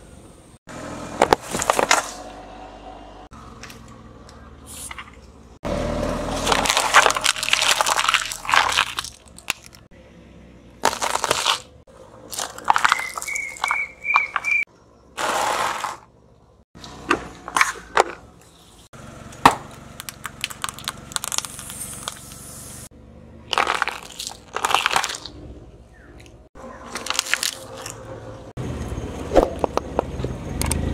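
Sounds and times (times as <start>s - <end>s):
car tyre crushing objects: 1.1s - 2.6s, 4.9s - 9.9s, 10.8s - 16.2s, 16.8s - 22.7s, 23.3s - 28.1s
cracks crunches and crackles: 6.4s - 9.9s, 10.8s - 11.7s, 12.3s - 16.0s, 19.4s - 22.5s, 23.5s - 25.4s, 26.2s - 28.0s.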